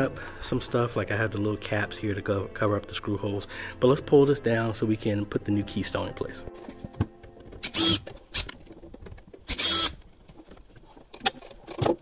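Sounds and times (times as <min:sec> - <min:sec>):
plastic scraping: 0:06.6 - 0:12.0.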